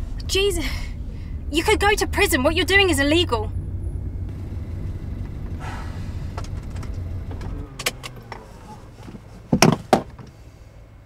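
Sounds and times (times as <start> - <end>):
car interior rumble: 0.0 - 11.0
loud knocks: 9.5 - 10.3.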